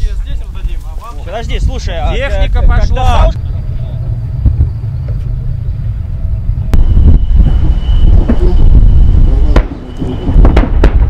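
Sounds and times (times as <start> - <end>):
tracked vehicles rumbling: 0.6 - 11.0
thin high whine: 3.2 - 10.8.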